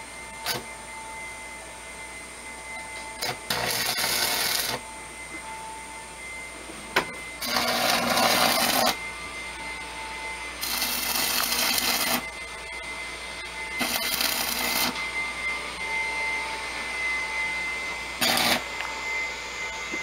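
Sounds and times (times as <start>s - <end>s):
welding arc crackling and hissing: 0.4s - 0.6s, 3.2s - 4.8s, 7.4s - 9.0s, 10.6s - 12.3s, 13.8s - 15.0s, 18.2s - 18.7s.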